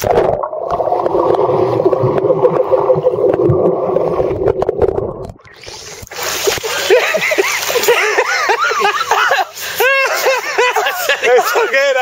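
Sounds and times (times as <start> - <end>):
muffled underwater bubbling: 0.0 - 6.2.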